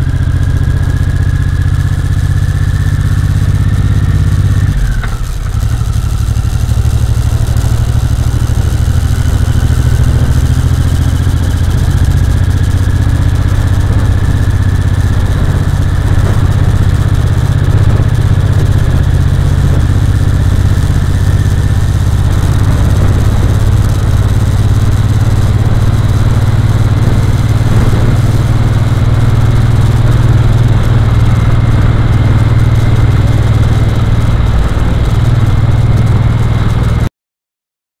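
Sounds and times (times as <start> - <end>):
road noise: 0.0 - 37.1
vehicle engine droning: 0.0 - 37.1
wind rushing: 14.0 - 36.5.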